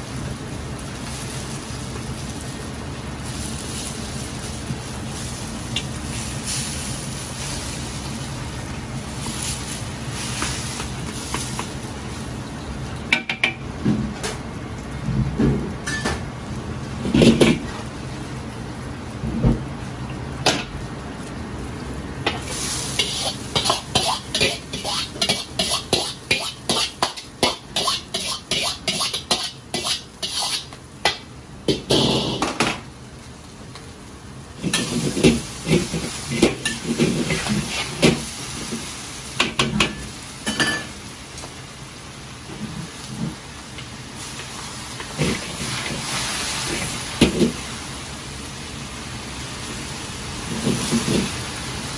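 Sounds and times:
food sizzling in a wok: 0.0 - 51.9
metal utensils clanking and scraping: 22.3 - 31.2, 34.6 - 38.2.

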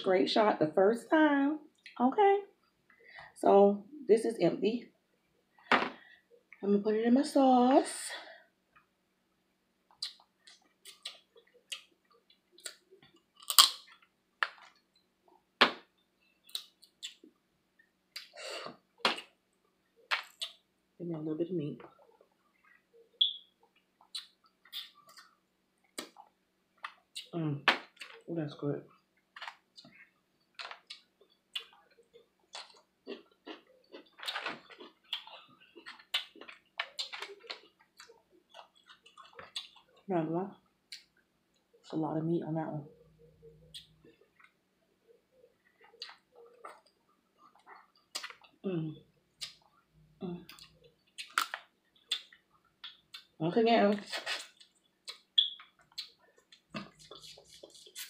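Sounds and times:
person chewing and sucking food: 9.9 - 14.8, 16.4 - 17.4, 20.0 - 20.6, 22.0 - 28.2, 29.3 - 40.1, 45.7 - 48.6, 49.3 - 53.4, 54.1 - 58.0
crab shells cracking: 50.6 - 53.1.

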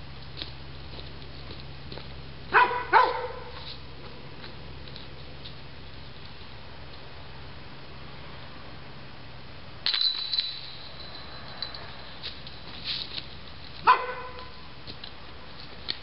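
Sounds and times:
metallic clang: 9.8 - 12.0
disc golf basket chains rattling: 9.8 - 13.8.

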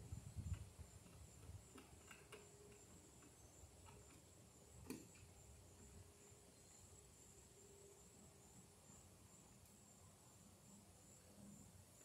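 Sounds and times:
faint clicks and taps: 0.5 - 5.9.

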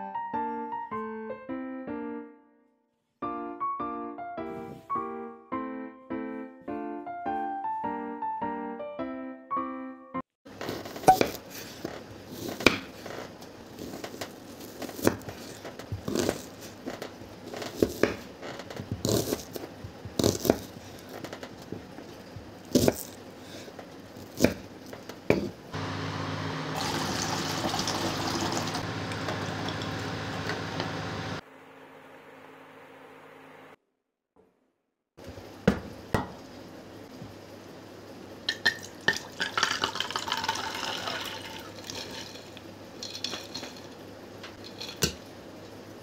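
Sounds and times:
knife chopping on wooden board: 24.3 - 24.6
water boiling in saucepan: 25.8 - 31.4, 36.1 - 46.0.

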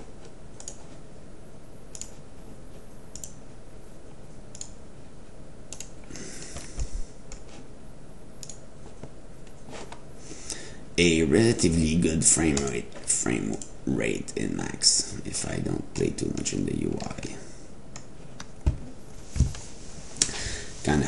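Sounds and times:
computer mouse clicks: 0.6 - 1.0, 1.9 - 2.2, 3.1 - 3.4, 4.5 - 4.8, 5.7 - 6.0, 8.4 - 8.6, 12.5 - 12.8.

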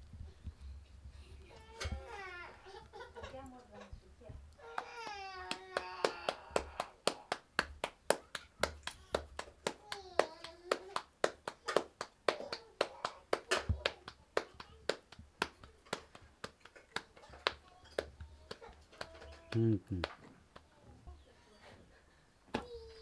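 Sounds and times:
hands slapping dough: 4.7 - 20.7.

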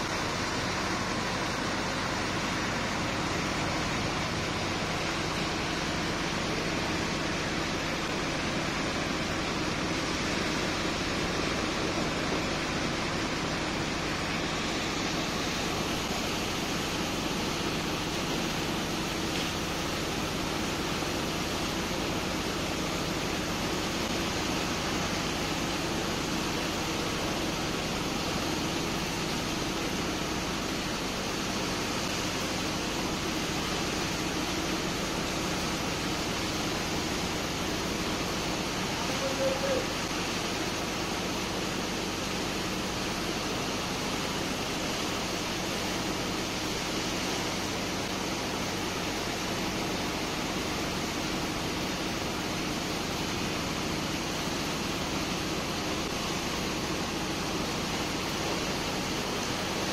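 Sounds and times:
hose water rushing: 0.0 - 59.9
low machine hum: 0.0 - 59.9
short tone: 39.1 - 39.9.

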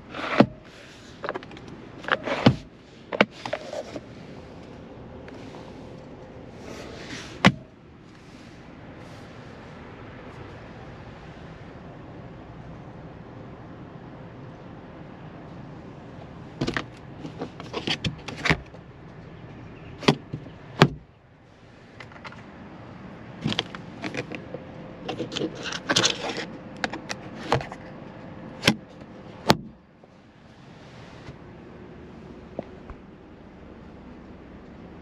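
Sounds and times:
phone handling clicks and rustles: 1.2 - 6.3, 22.0 - 22.6, 23.4 - 29.8.

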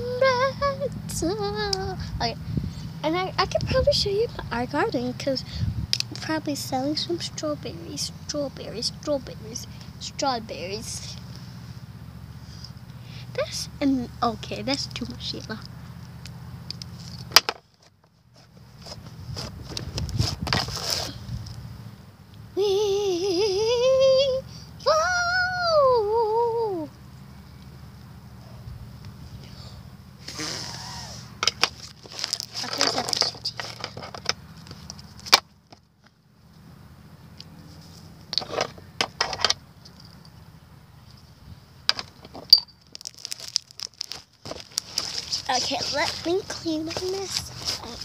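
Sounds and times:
high voice wordless calls: 30.2 - 31.4
small objects clicking and clinking: 42.5 - 45.3.

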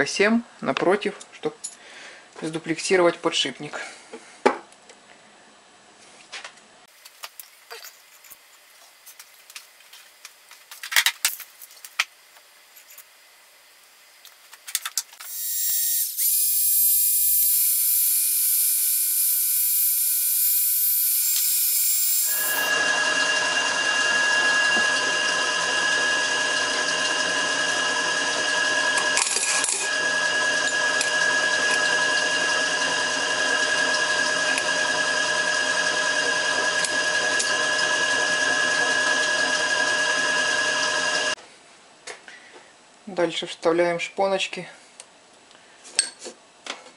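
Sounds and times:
hot-air gun fan whine: 6.9 - 41.4.

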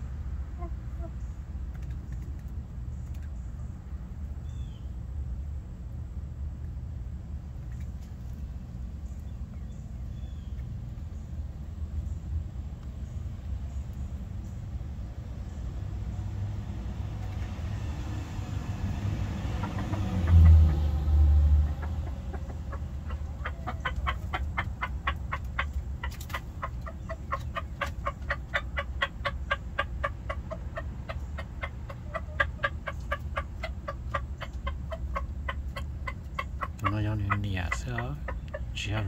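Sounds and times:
junglefowl clucking: 0.5 - 1.3, 19.4 - 39.0.

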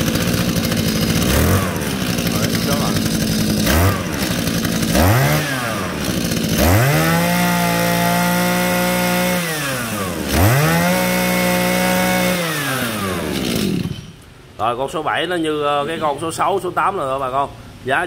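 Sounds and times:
brush cutter engine revving: 0.0 - 14.2.

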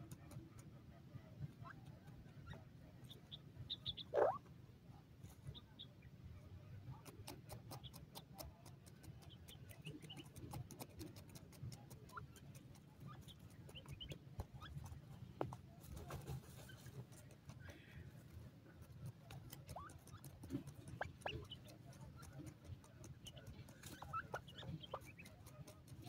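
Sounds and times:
small dry clicks: 0.0 - 1.0, 6.8 - 26.0
soft bird chirps: 1.4 - 4.5, 5.2 - 6.2, 6.8 - 10.6, 12.0 - 17.7, 19.5 - 26.0.

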